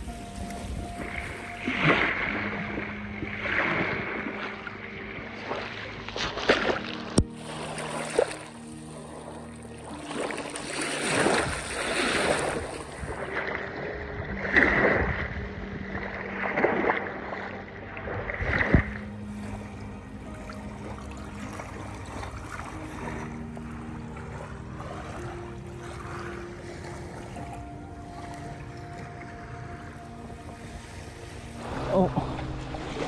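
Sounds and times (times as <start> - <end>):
small waves splashing on stony shore: 0.0 - 13.9, 20.6 - 33.0
soft background music: 0.0 - 33.0.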